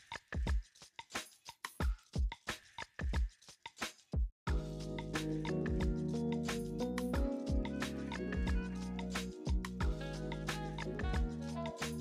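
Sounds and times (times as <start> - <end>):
kick drum: 4.2 - 4.7, 5.7 - 6.0, 7.2 - 7.7, 8.4 - 8.7, 9.5 - 10.0, 11.0 - 11.3.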